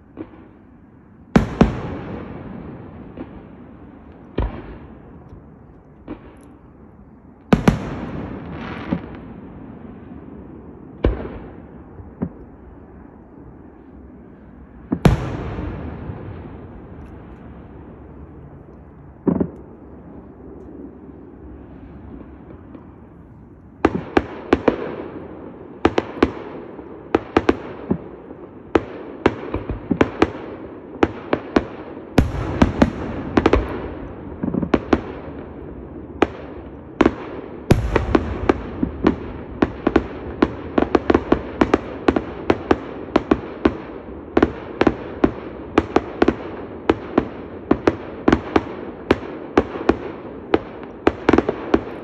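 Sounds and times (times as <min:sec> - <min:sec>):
rapid firework bangs: 0:01.4 - 0:05.2, 0:07.5 - 0:10.0, 0:11.0 - 0:12.4, 0:14.9 - 0:17.8, 0:19.2 - 0:19.6, 0:23.8 - 0:52.0.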